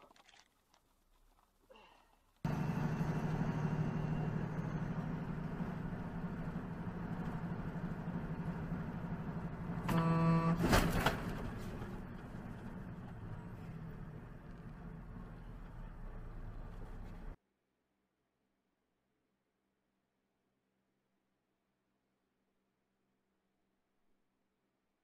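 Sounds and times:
car engine and road noise: 0:02.3 - 0:17.4
car horn: 0:09.8 - 0:11.7.

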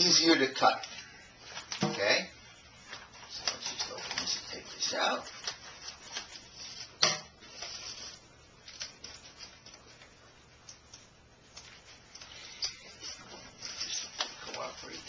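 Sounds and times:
plastic bag crinkling: 0:11.7 - 0:15.0.

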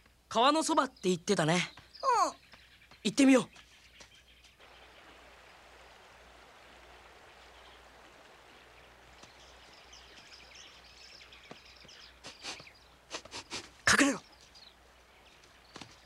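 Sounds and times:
flowing stream: 0:04.6 - 0:16.0.

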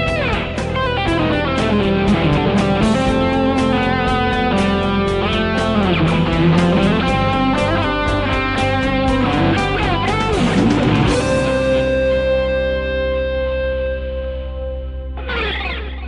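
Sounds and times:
backing track with drums: 0:00.0 - 0:12.7
electric guitar lead solo: 0:00.0 - 0:16.0.

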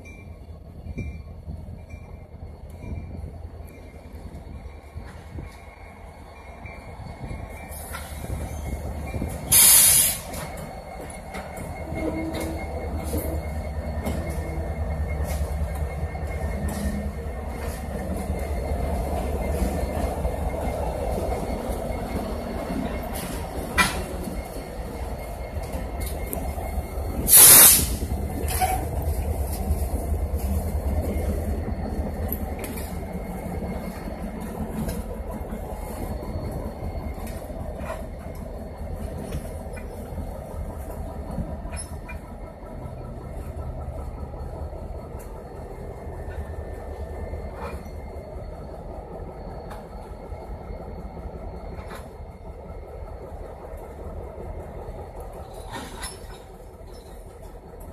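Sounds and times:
diesel locomotives rumbling: 0:00.0 - 0:57.9
faint wheel squeal: 0:02.0 - 0:44.5.

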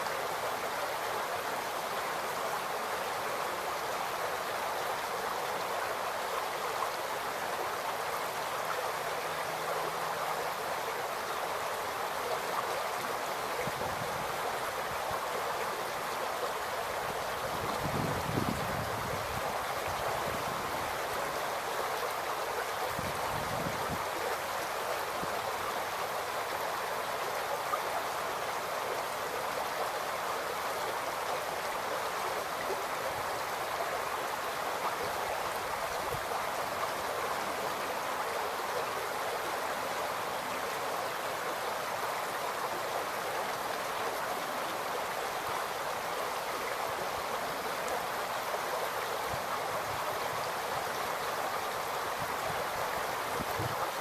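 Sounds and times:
creek babbling over stones: 0:00.0 - 0:54.0.

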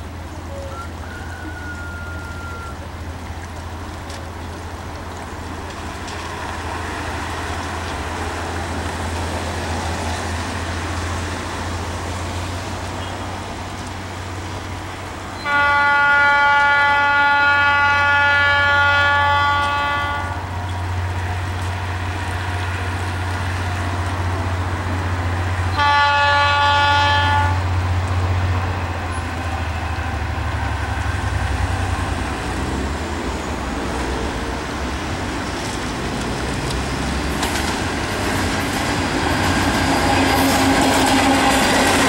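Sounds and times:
locomotive horn blast: 0:00.4 - 0:03.0, 0:15.4 - 0:20.6, 0:25.7 - 0:27.7, 0:39.7 - 0:42.0.

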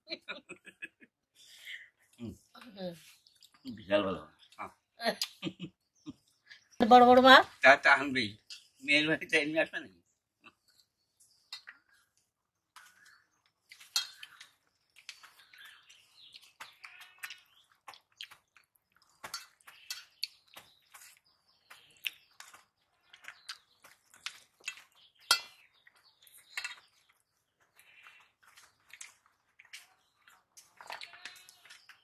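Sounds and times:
clinks and scrapes on steel plates: 0:13.9 - 0:14.5, 0:19.2 - 0:20.2, 0:25.2 - 0:25.6.

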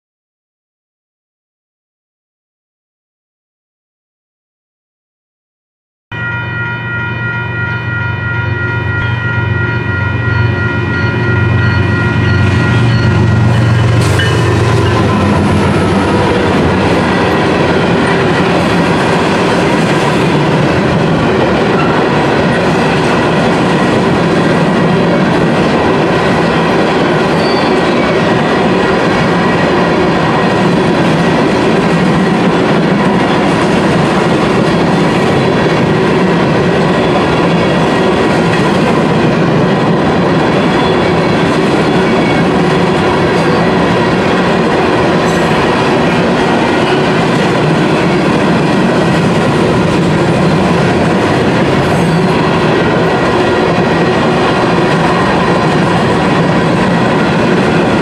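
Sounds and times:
crossing bell ringing: 0:06.1 - 0:58.0
diesel locomotive engine droning: 0:06.1 - 0:58.0
train wheels clattering on rails: 0:11.6 - 0:58.0.

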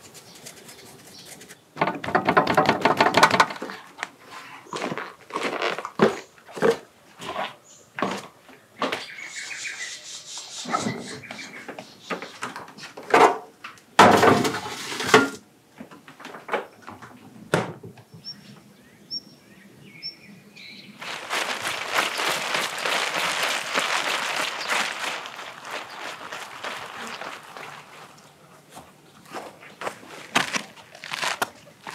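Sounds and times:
knocks and rustles: 0:01.1 - 0:03.8, 0:21.0 - 0:31.9
bird chirps: 0:09.0 - 0:12.4
water spraying from a hose: 0:21.0 - 0:28.2.

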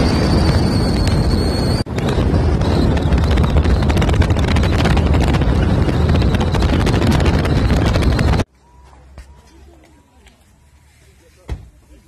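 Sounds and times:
wind buffeting microphone: 0:00.0 - 0:08.5
road noise: 0:00.0 - 0:12.0.

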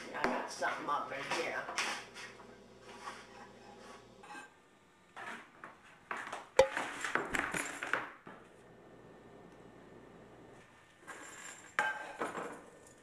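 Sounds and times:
dishes and pans clattering: 0:11.8 - 0:12.8.

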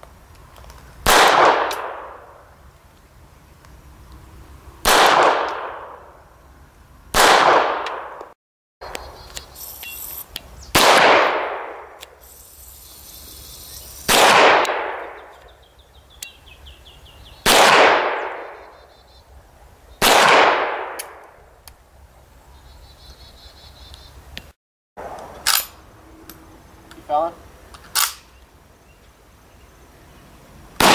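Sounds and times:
echoing pistol shots: 0:01.0 - 0:02.2, 0:04.8 - 0:06.0, 0:07.1 - 0:08.3, 0:10.7 - 0:12.0, 0:14.1 - 0:15.3, 0:17.4 - 0:18.6, 0:20.0 - 0:21.2.

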